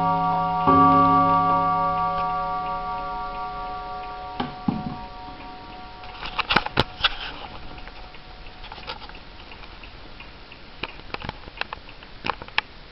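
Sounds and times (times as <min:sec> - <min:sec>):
clock strike ringing tone: 0:00.0 - 0:09.3
irregular clicks and knocks: 0:03.0 - 0:10.0.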